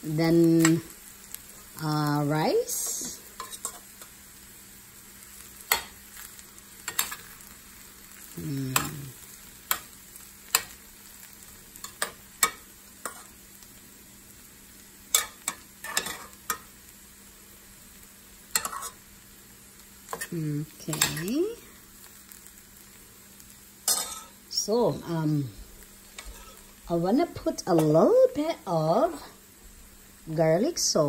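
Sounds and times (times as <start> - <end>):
faint sizzle: 0.0 - 31.0
spoon scraping a pan: 2.7 - 4.2, 5.4 - 7.5, 11.8 - 13.4, 15.1 - 16.7, 18.5 - 19.0, 20.1 - 21.3, 23.8 - 24.4, 26.1 - 26.7.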